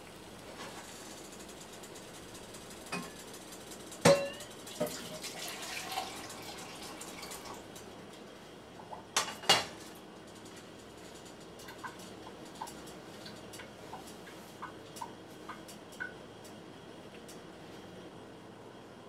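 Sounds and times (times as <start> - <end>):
metallic clinks on metal pot: 4.1 - 4.5.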